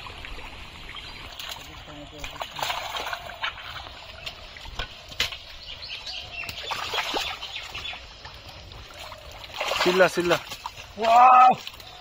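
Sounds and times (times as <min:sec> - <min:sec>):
squelching mud and splashes: 0:00.0 - 0:12.0
bird chirps: 0:03.2 - 0:09.4.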